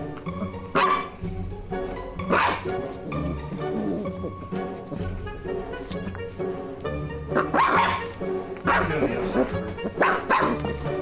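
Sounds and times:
puppy barking: 0.2s - 1.2s, 2.2s - 5.2s, 7.3s - 10.9s.

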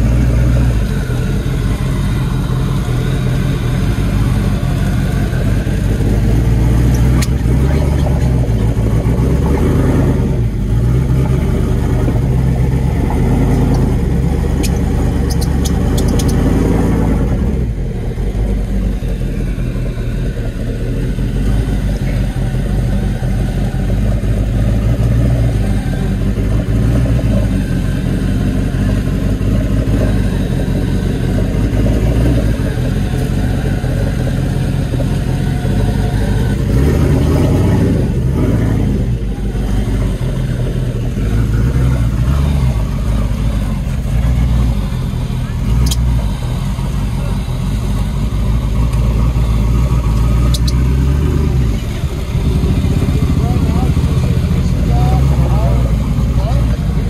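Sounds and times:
engine revving under load: 0.0s - 57.0s
sharp clicks: 6.8s - 7.6s, 14.5s - 16.5s, 45.8s - 46.2s, 50.2s - 51.0s.

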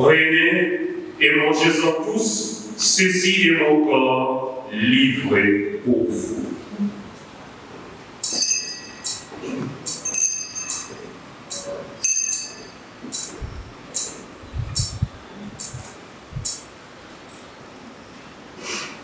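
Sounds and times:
metallic chain clinks and knocks: 8.2s - 9.3s, 9.9s - 12.8s
small bells ringing: 8.2s - 9.3s, 9.9s - 11.1s, 12.0s - 12.9s.

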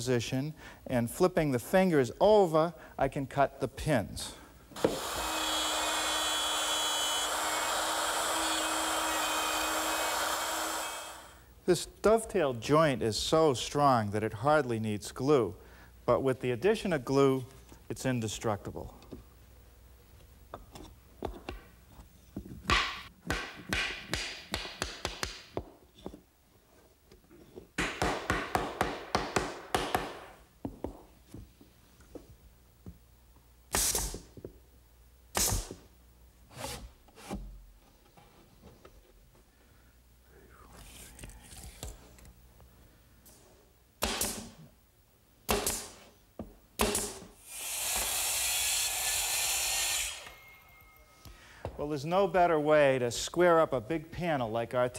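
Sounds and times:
pneumatic nailer firing: 4.8s - 11.3s, 33.7s - 34.3s, 35.3s - 35.8s, 44.0s - 44.6s, 45.5s - 46.0s, 46.8s - 50.4s
nail gun firing: 35.4s - 35.7s, 44.0s - 44.5s, 45.5s - 46.0s, 46.8s - 50.3s.

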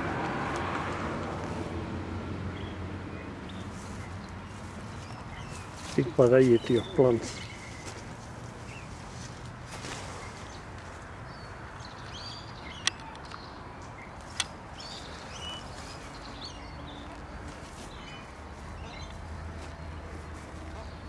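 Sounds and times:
outdoor background noise: 0.0s - 21.0s
small birds chirping: 2.5s - 21.0s
sharp clicks: 12.7s - 13.5s, 14.2s - 14.6s.

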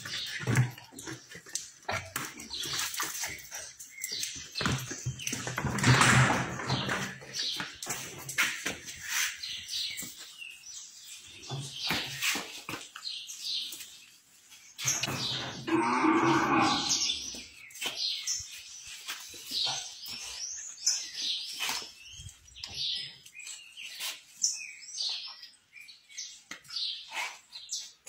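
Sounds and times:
small birds chirping: 0.0s - 5.8s, 6.8s - 28.0s
cow mooing: 15.6s - 17.1s.

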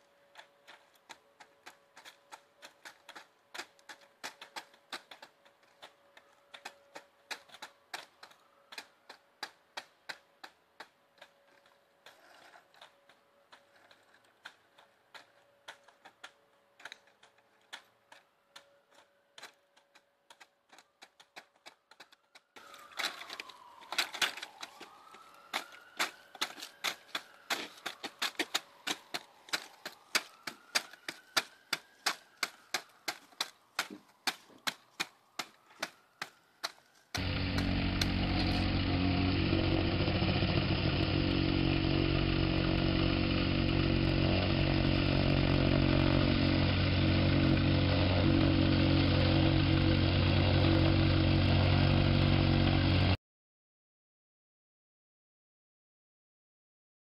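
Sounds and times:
plastic paver panels clicking: 0.3s - 38.6s.

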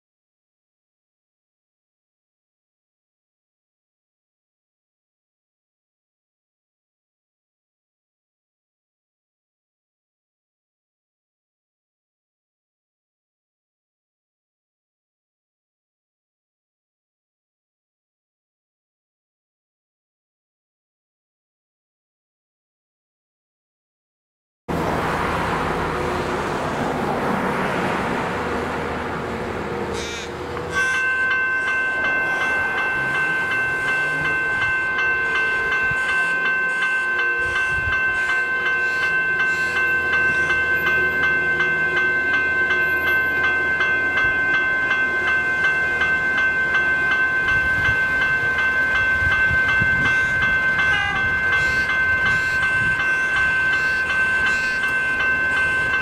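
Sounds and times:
level crossing warning bells: 27.4s - 56.0s.

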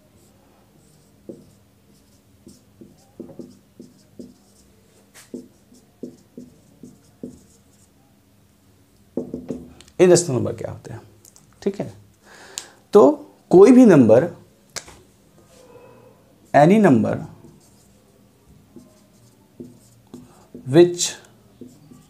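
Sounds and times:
marker squeaking on whiteboard: 0.2s - 7.9s, 15.5s - 22.0s.

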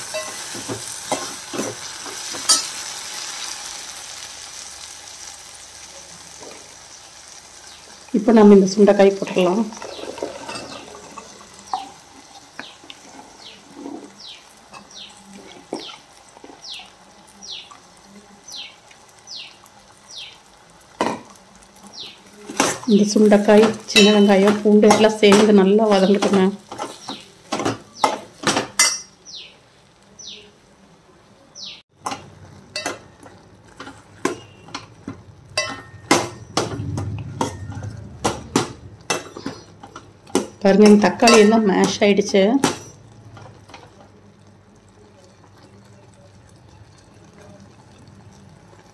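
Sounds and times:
clinks against a metal pan: 0.0s - 0.5s, 23.6s - 29.2s, 32.0s - 35.0s, 35.6s - 36.8s, 37.4s - 42.0s, 42.6s - 44.0s
berries pattering into a pan: 0.0s - 29.2s, 31.9s - 48.9s
frying sizzle: 0.0s - 48.9s
ladle scraping a metal pot: 9.7s - 14.2s
bird chirping: 18.5s - 20.4s, 29.2s - 29.6s.

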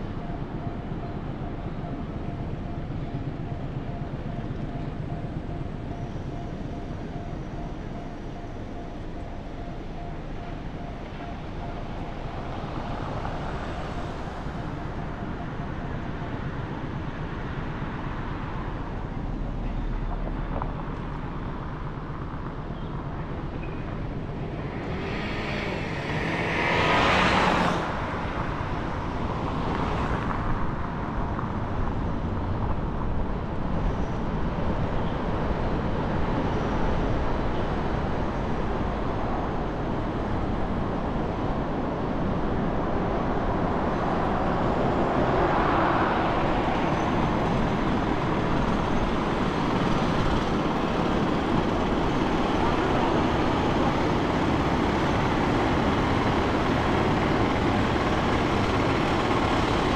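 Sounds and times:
city road traffic: 0.0s - 59.9s
vehicle passing close by: 24.7s - 28.6s.

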